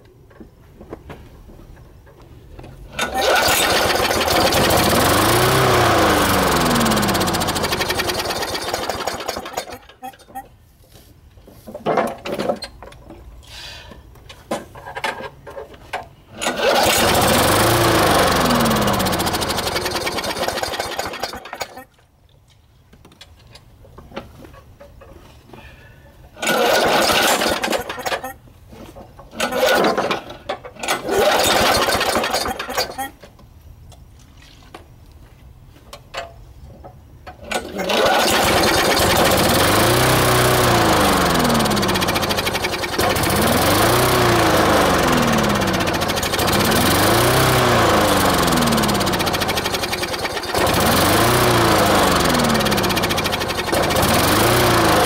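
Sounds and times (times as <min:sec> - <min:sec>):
lawn mower engine running: 0:02.9 - 0:10.4, 0:15.6 - 0:21.8, 0:26.4 - 0:28.2, 0:28.9 - 0:33.2, 0:37.3 - 0:55.0.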